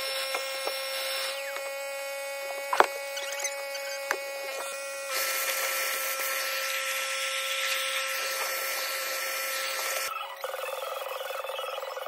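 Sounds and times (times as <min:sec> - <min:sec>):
vacuum cleaner motor whine: 0:00.0 - 0:11.8.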